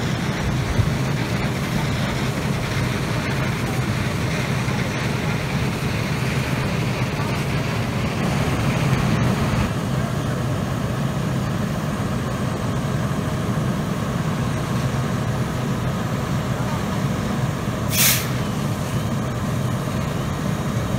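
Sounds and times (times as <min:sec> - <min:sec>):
fire engine pump running: 0:00.0 - 0:20.9
hose spray hissing: 0:17.9 - 0:19.0.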